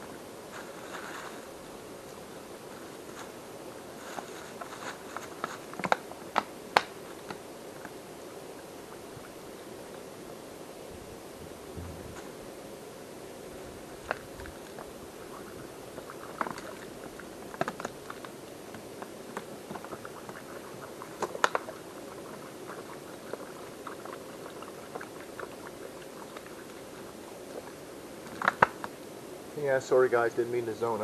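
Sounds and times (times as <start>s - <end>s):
water bubbling and trickling: 19.8s - 27.8s.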